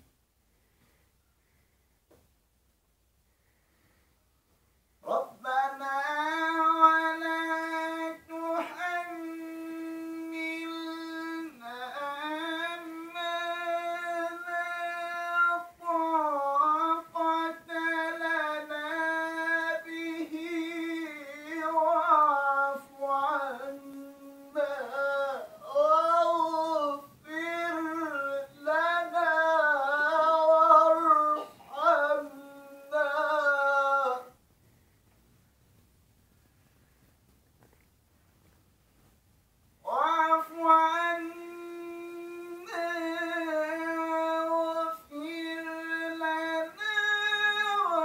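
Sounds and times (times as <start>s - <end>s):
man reciting melodically: 5.0s - 34.4s, 39.8s - 48.0s.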